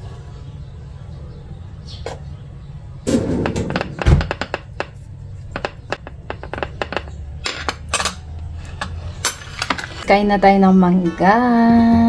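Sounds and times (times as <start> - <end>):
dull thunk: 3.1 - 4.6.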